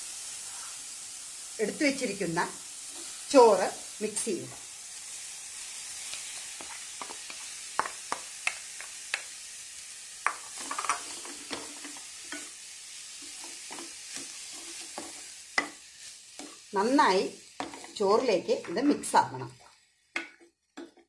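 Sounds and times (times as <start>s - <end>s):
faint sizzle: 0.0s - 21.0s
spatula scraping a pan: 10.3s - 16.7s, 17.6s - 21.0s.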